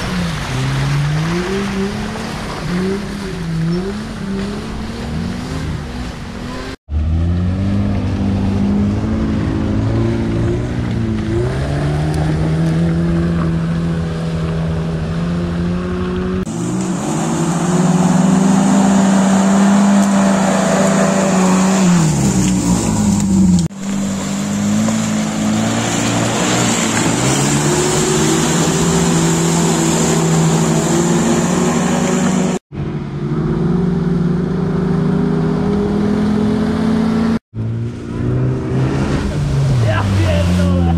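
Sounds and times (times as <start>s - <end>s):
off-road engines revving in mud: 0.0s - 40.9s.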